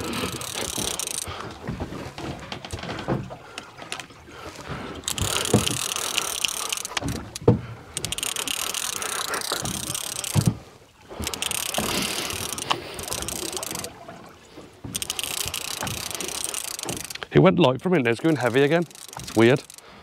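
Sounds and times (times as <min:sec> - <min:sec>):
fishing reel gears whirring: 0:00.0 - 0:01.5, 0:03.6 - 0:14.0, 0:14.8 - 0:17.3, 0:18.1 - 0:20.0
knocks from rod and reel: 0:00.0 - 0:20.0.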